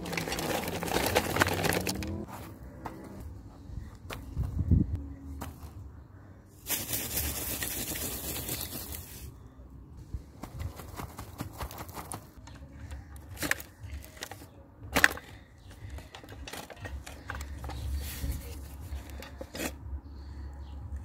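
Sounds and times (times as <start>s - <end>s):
toys scraping on gritty dirt: 0.0s - 3.2s, 10.4s - 19.8s.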